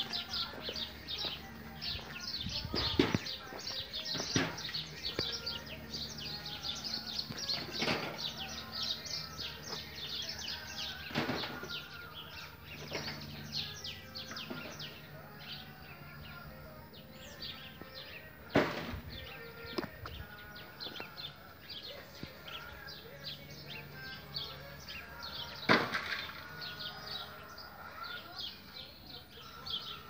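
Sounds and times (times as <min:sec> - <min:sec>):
small birds chirping: 0:00.0 - 0:30.0.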